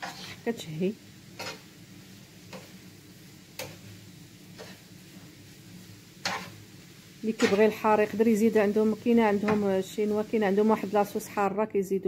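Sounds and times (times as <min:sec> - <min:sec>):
wooden spatula knocking on pan: 0:09.4 - 0:09.7.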